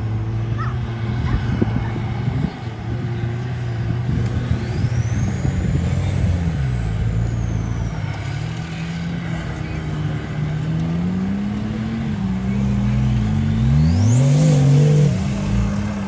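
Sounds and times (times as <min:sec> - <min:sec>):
vehicle engine revving: 0:00.0 - 0:16.0
faint high whistle: 0:07.2 - 0:08.1.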